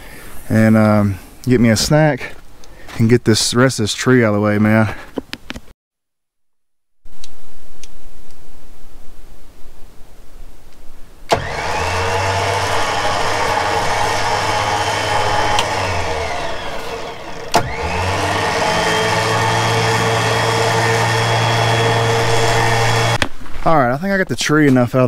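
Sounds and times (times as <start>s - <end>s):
winch click: 11.3s - 13.5s, 14.4s - 17.9s
winch whining under load: 11.3s - 23.2s.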